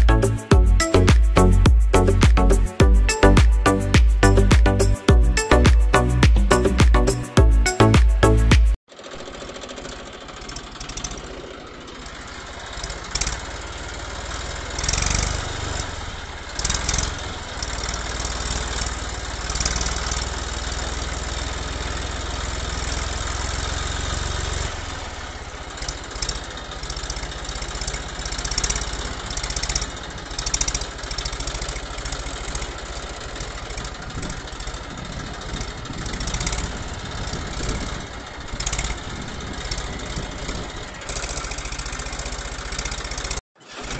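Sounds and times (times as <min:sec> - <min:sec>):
tractor engine humming: 0:00.0 - 0:43.9.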